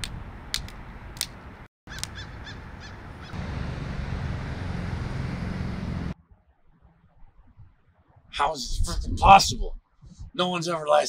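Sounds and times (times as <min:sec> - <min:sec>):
sharp click: 0:00.0 - 0:02.2
short falling bird calls: 0:01.9 - 0:03.5.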